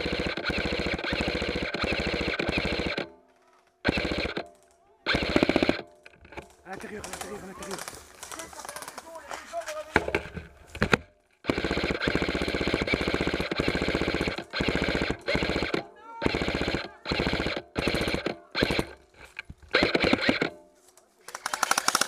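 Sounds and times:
airsoft gun firing bursts: 0.0s - 3.2s, 3.8s - 5.9s, 6.7s - 9.1s, 10.8s - 19.1s, 19.7s - 20.6s, 21.3s - 22.0s.

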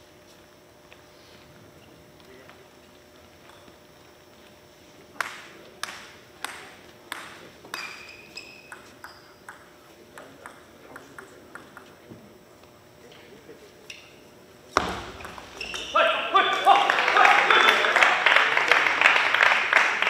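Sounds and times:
high squeak: 7.8s - 9.4s, 15.5s - 16.1s
table tennis ball clicking: 8.5s - 12.0s.

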